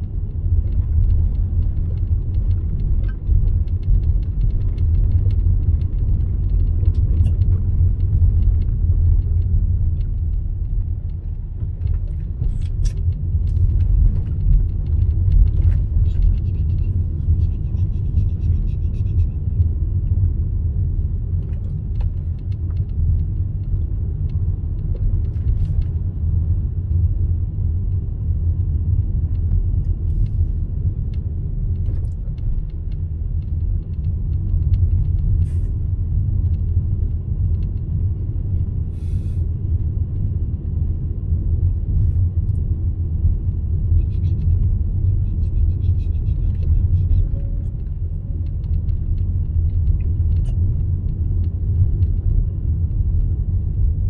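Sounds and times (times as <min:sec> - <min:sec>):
small clicks and rattles: 0:00.0 - 0:20.3
car engine and tyre rumble: 0:00.0 - 0:54.0.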